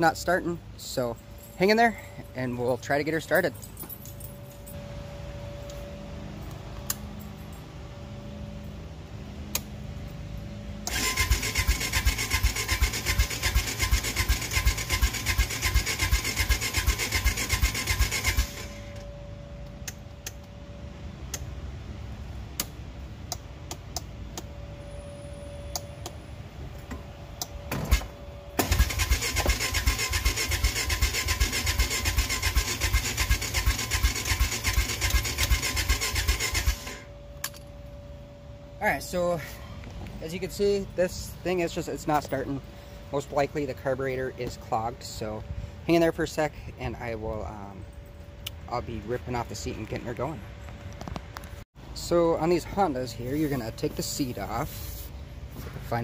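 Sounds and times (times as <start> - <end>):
atv engine cranking: 10.8 - 19.0, 28.6 - 37.1.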